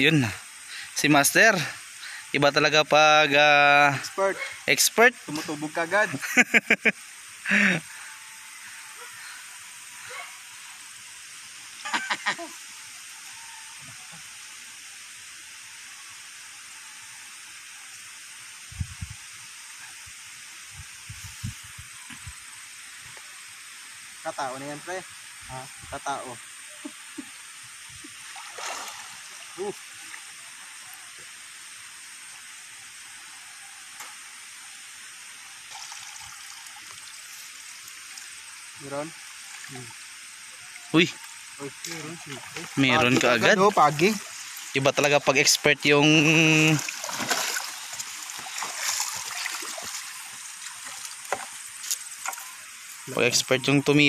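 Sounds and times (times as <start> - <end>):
river hiss: 0.0 - 54.0
water splashing and dripping: 28.0 - 30.4, 35.6 - 53.2.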